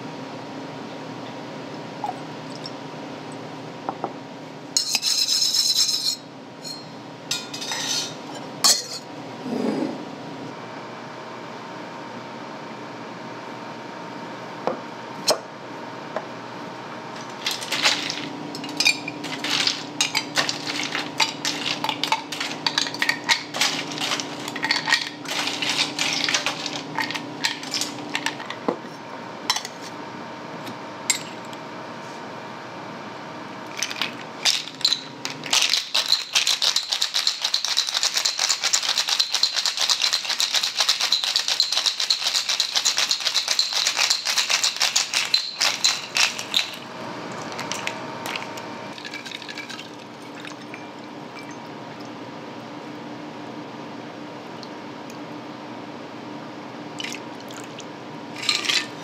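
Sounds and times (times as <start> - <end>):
ice cubes clinking into shaker: 17.2 - 28.5, 33.8 - 46.8, 47.4 - 51.6, 58.4 - 59.0
ice rattling in a shaker: 17.2 - 28.5, 33.8 - 46.8, 47.4 - 51.0, 58.4 - 59.0.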